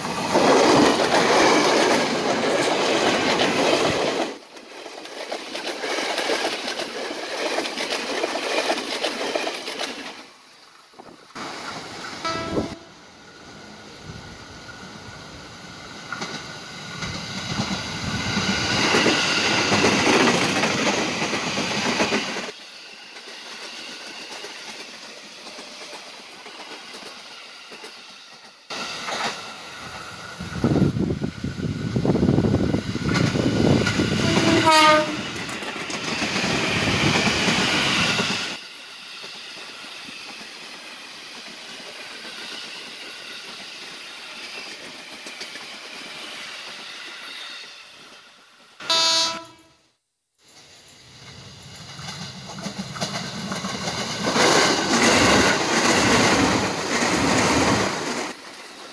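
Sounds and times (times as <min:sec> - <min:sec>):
electric trains passing: 0:00.0 - 0:49.7, 0:50.4 - 0:58.9
train horn blast: 0:12.2 - 0:13.0, 0:34.2 - 0:35.3, 0:48.8 - 0:49.9.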